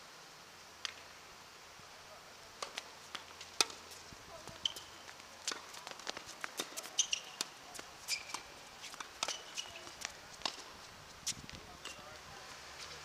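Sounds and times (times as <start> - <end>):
footsteps on hard court: 2.6 - 11.6
tennis ball popping off rackets: 2.6 - 12.1
sneaker squeaks: 4.4 - 5.0, 6.6 - 10.0.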